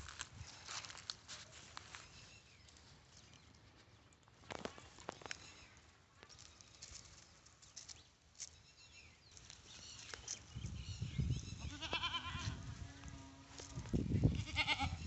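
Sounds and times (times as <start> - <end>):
goats bleating: 11.7 - 12.6, 14.4 - 15.0.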